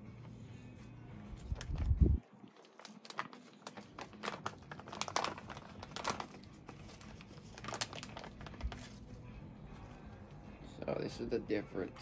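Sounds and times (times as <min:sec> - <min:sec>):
plastic bag crinkling and tearing: 0:01.4 - 0:09.1.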